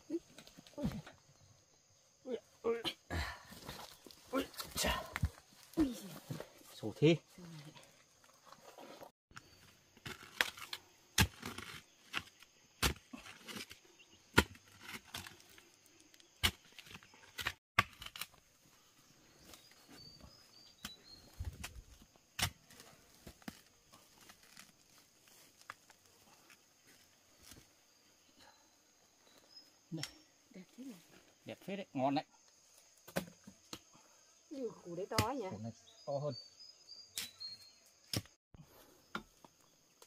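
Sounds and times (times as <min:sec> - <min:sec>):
faint insect drone: 0:00.0 - 0:08.6, 0:22.0 - 0:40.0
digging tool striking soil: 0:10.0 - 0:13.7, 0:22.4 - 0:22.7.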